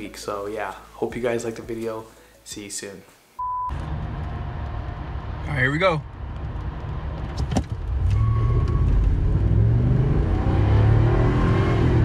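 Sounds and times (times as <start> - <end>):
truck engine accelerating: 3.7 - 12.0.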